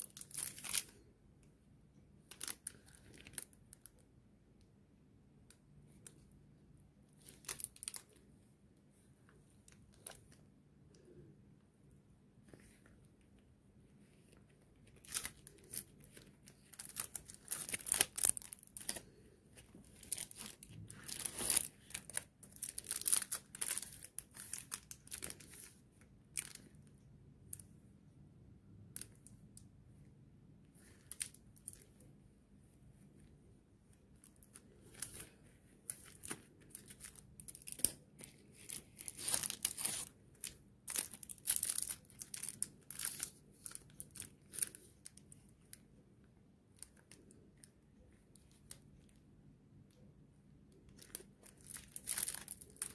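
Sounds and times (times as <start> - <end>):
plastic sleeves crinkling: 0.0 - 1.1, 2.2 - 4.0, 7.1 - 8.3, 9.3 - 11.3, 14.0 - 27.7, 30.7 - 32.1, 32.9 - 46.0, 46.7 - 49.2, 50.7 - 52.9.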